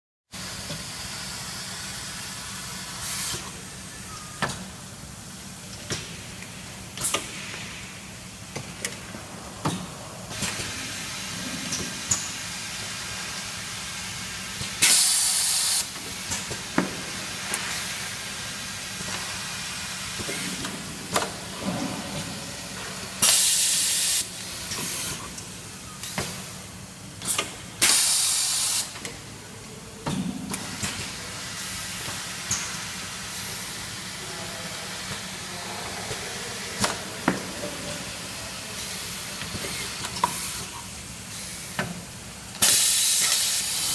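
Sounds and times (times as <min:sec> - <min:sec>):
compressed air hiss: 0:14.8 - 0:16.0, 0:23.2 - 0:25.2, 0:27.3 - 0:29.0, 0:42.6 - 0:43.9.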